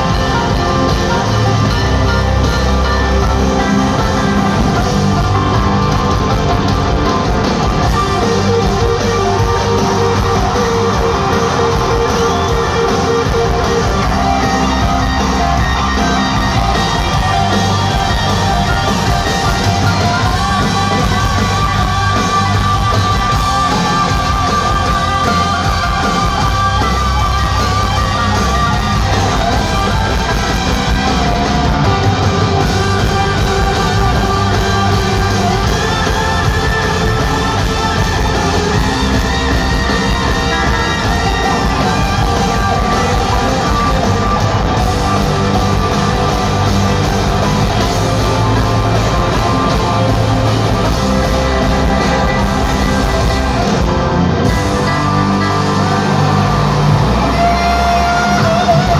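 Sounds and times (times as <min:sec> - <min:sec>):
live rock band: 0:00.0 - 0:58.9
person singing: 0:07.6 - 0:46.9, 0:54.5 - 0:58.9.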